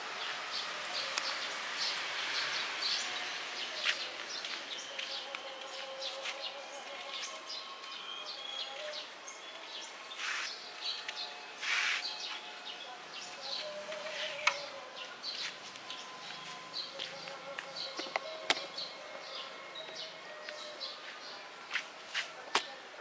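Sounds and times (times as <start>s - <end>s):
small birds chirping: 0.1s - 21.4s
rustles: 10.1s - 12.5s, 13.2s - 18.4s.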